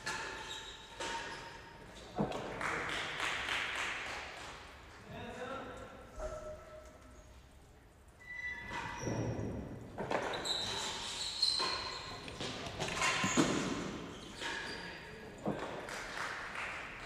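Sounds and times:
ball knocks echoing indoors: 0:00.0 - 0:04.9, 0:08.7 - 0:17.0.

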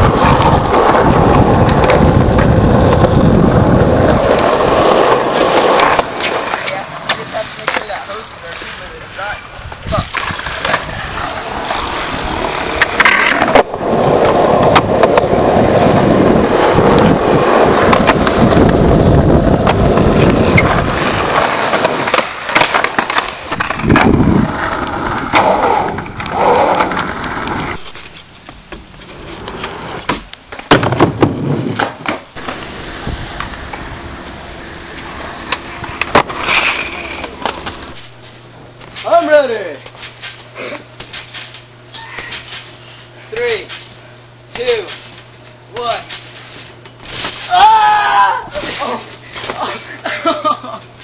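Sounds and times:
skateboard clacking on ground: 0:00.0 - 0:18.9, 0:19.6 - 0:32.7, 0:35.0 - 0:38.0
skateboard wheels rolling on pavement: 0:00.0 - 0:41.3.

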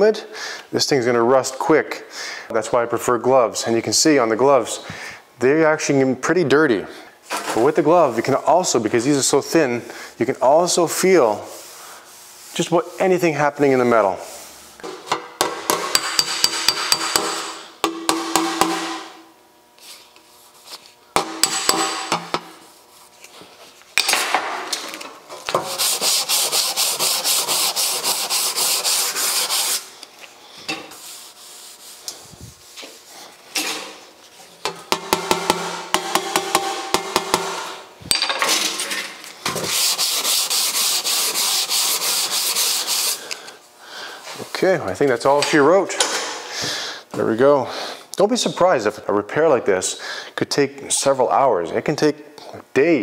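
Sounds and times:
sandpaper rubbing on steel: 0:10.6 - 0:14.6, 0:25.6 - 0:29.9, 0:30.9 - 0:33.4, 0:39.5 - 0:43.3.

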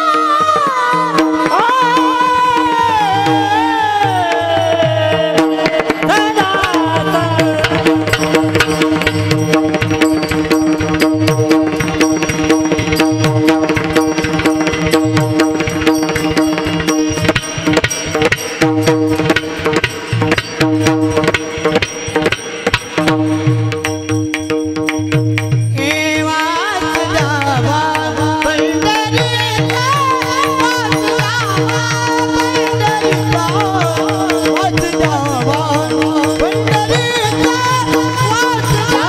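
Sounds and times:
person singing: 0:00.0 - 0:08.2, 0:25.8 - 0:39.0.

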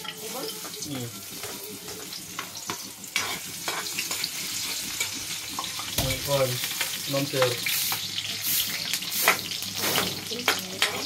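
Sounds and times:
food sizzling in a frying pan: 0:00.0 - 0:11.0
utensil clicking against pan: 0:10.3 - 0:11.0.

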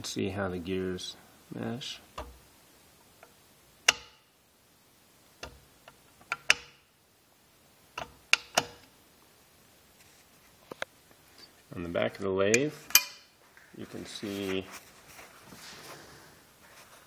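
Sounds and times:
lathe lever and gears clicking: 0:03.9 - 0:04.2, 0:05.4 - 0:06.8, 0:08.0 - 0:08.8.

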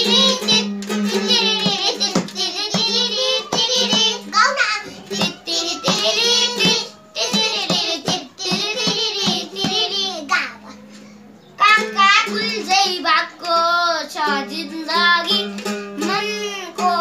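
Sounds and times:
hand drum beat: 0:00.0 - 0:04.3, 0:05.1 - 0:09.9
children singing: 0:00.0 - 0:10.9, 0:11.6 - 0:17.0
ukulele strumming: 0:00.0 - 0:11.0, 0:11.6 - 0:17.0.

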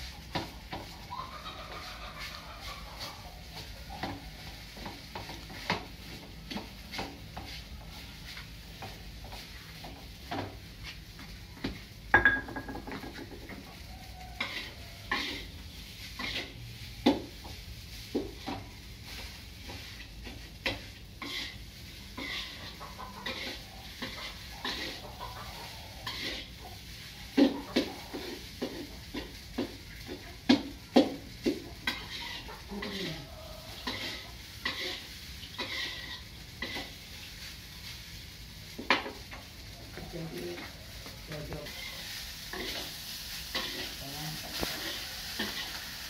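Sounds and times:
spatula scraping a wok: 0:00.0 - 0:12.0, 0:12.9 - 0:40.0, 0:40.6 - 0:46.0
rice sizzling: 0:00.0 - 0:46.0.

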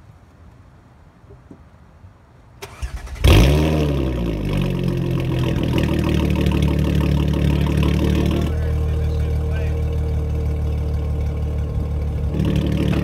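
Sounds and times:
car engine revving then idling: 0:02.6 - 0:13.0
engine cranking: 0:02.6 - 0:13.0.

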